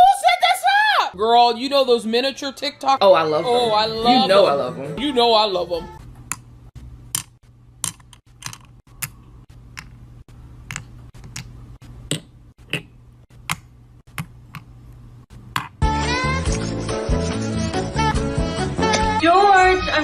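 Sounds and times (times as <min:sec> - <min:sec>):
music: 0:02.9 - 0:06.0, 0:15.8 - 0:20.0
tweezers tapping plastic pieces: 0:07.2 - 0:10.0.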